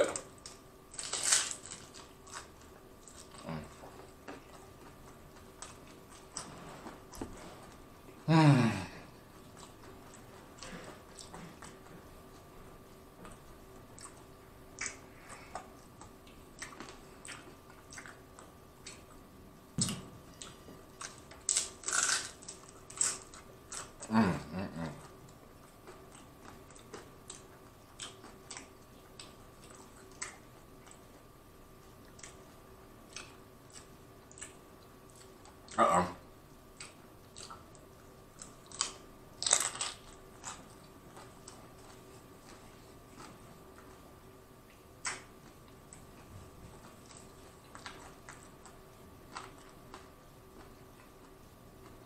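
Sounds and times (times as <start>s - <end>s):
crunchy taco chewing: 0.0s - 7.9s, 9.1s - 24.2s, 24.8s - 35.8s, 36.7s - 52.0s
person humming low: 8.2s - 9.2s, 24.0s - 25.0s.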